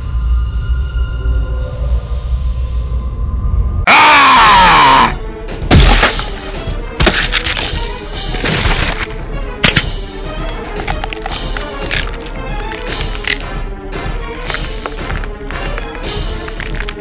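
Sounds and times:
background music: 0:00.0 - 0:17.0
crash and impact hits: 0:05.6 - 0:10.0.

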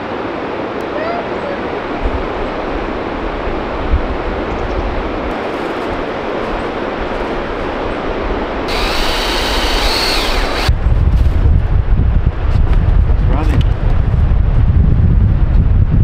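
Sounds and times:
wind rumbling on microphone: 0:00.0 - 0:16.0
cordless drill whining: 0:08.7 - 0:10.7.

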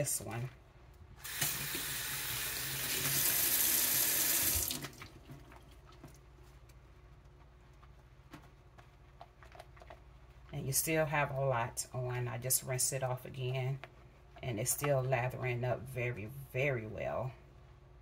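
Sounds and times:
water running into sink: 0:01.2 - 0:05.3.

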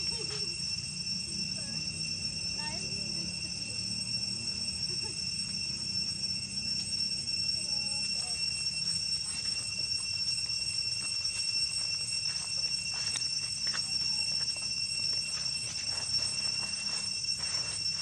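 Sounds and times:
high-pitched insect drone: 0:00.0 - 0:18.0
dry leaves rustling: 0:11.0 - 0:18.0.

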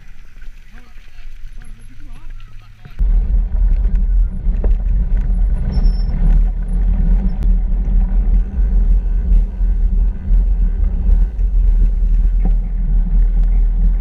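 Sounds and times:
bike tyre roaring on tarmac: 0:00.0 - 0:14.0
wind buffeting microphone: 0:03.0 - 0:14.0.

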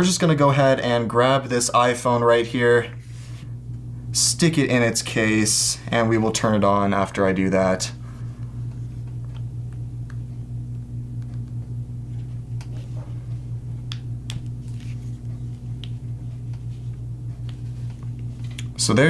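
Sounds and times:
steady low hum: 0:00.0 - 0:19.0
soft rubbing: 0:03.0 - 0:03.6, 0:14.5 - 0:18.6.

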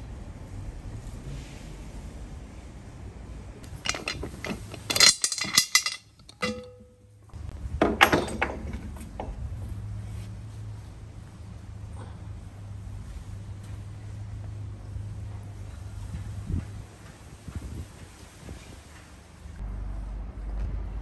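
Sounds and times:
pliers clinking on metal lid: 0:03.8 - 0:07.1.

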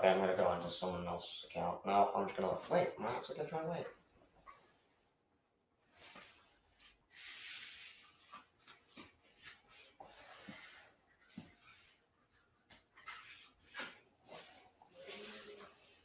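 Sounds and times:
faint breathy hiss: 0:14.2 - 0:16.0.

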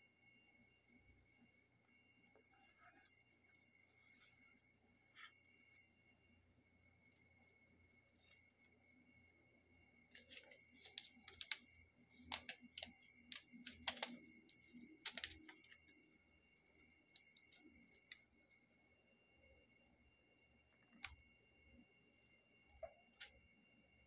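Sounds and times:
paper rustling and crackling: 0:10.1 - 0:18.3.

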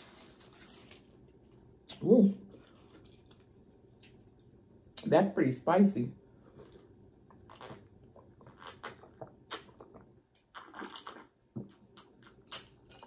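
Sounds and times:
person sipping and swallowing: 0:06.4 - 0:11.3.

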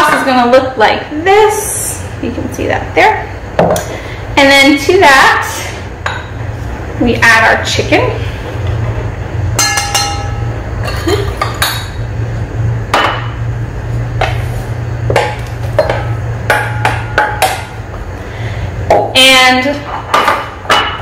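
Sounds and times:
steady low hum: 0:00.0 - 0:21.0
metal bowls clanking: 0:09.5 - 0:12.0.

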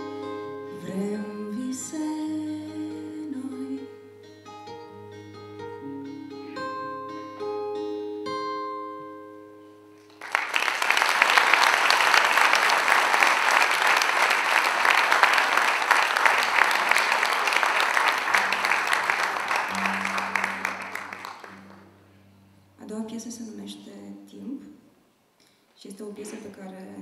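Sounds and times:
acoustic guitar notes ringing: 0:00.0 - 0:10.1, 0:18.4 - 0:23.5
audience applause: 0:10.1 - 0:21.9.

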